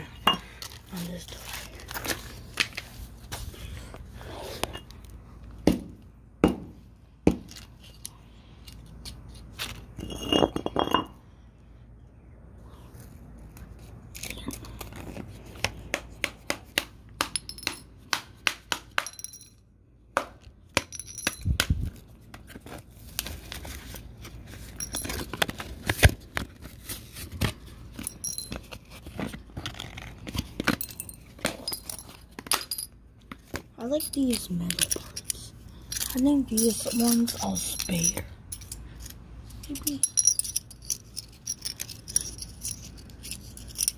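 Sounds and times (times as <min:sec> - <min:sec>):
metal pans clinking on concrete: 0:10.0 - 0:11.2.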